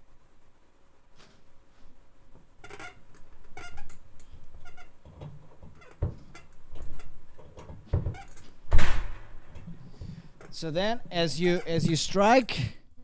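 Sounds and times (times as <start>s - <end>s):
drum hardware squeaking: 2.6s - 4.0s, 4.6s - 8.6s, 9.6s - 12.3s.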